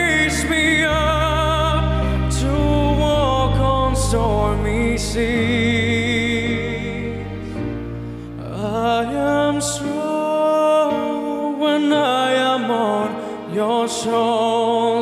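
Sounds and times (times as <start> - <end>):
man singing a slow ballad: 0.0 - 15.0
soft backing accompaniment: 0.0 - 15.0.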